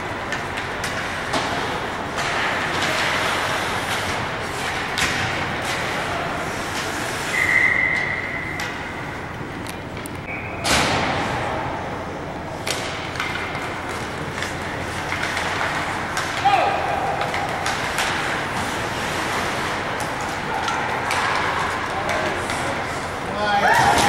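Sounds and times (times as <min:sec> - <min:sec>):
murmur of rink noise: 0:00.0 - 0:24.0
whistle-like tone: 0:07.3 - 0:08.6, 0:10.3 - 0:10.7
puck and sticks knocking: 0:12.6 - 0:22.8.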